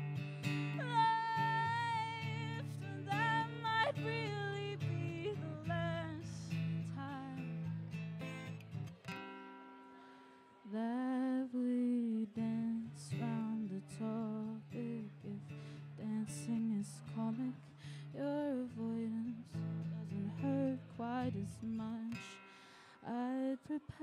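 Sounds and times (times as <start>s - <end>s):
acoustic guitar: 0.0s - 24.0s
woman singing with vibrato: 0.7s - 7.8s, 10.7s - 15.4s, 16.0s - 22.4s, 23.0s - 24.0s.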